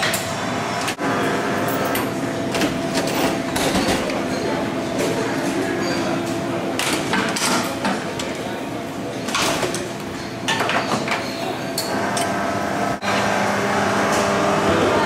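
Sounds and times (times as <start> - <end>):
cafe chatter: 1.0 - 15.0
espresso machine brewing hum: 11.9 - 15.0.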